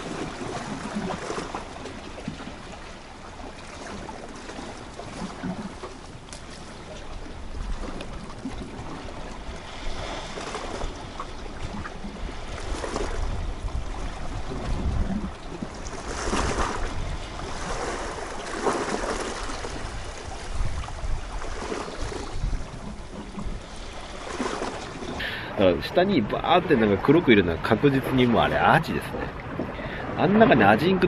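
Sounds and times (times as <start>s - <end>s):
waves washing against rocks: 0.0s - 31.0s
wind on microphone: 7.1s - 31.0s.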